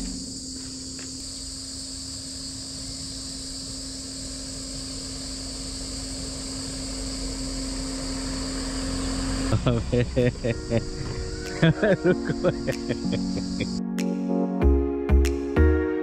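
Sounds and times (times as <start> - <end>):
insects buzzing: 0.0 - 13.8
low hum: 0.0 - 13.8.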